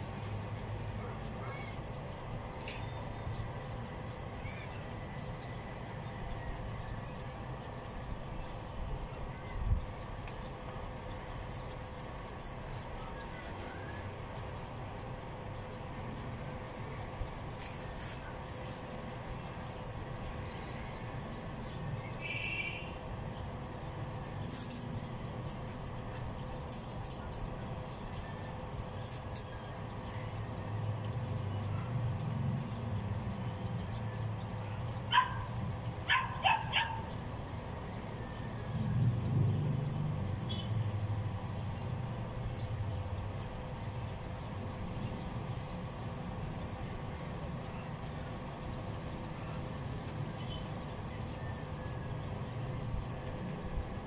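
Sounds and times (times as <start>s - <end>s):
dog barking: 35.1s - 35.5s, 36.1s - 37.1s.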